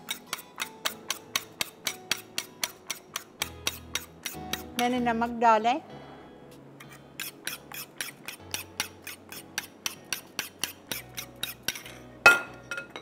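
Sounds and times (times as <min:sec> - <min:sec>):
utensil scraping a bowl: 0:00.0 - 0:05.0, 0:06.8 - 0:12.1.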